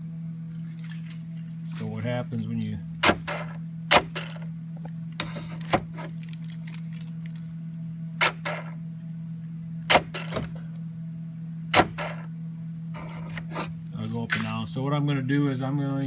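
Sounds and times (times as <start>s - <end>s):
steady low hum: 0.0s - 16.0s
keys jangling: 0.4s - 3.8s, 4.8s - 7.8s, 13.5s - 14.7s.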